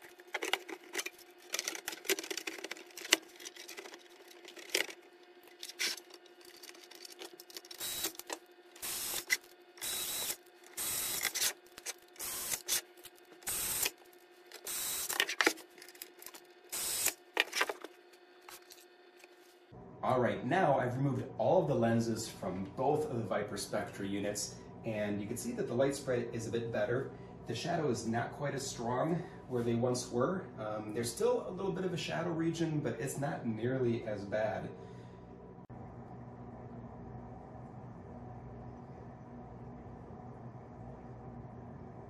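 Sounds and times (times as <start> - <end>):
clicks and rattles of handling: 0.0 - 8.4, 13.8 - 16.5, 17.3 - 18.8
steady hum: 0.0 - 42.0
cordless screwdriver running: 7.7 - 14.0, 14.6 - 15.6, 16.7 - 17.7.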